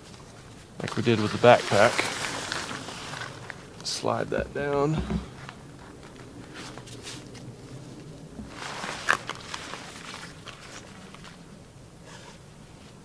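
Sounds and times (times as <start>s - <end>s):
tarp rustling: 0.0s - 13.0s.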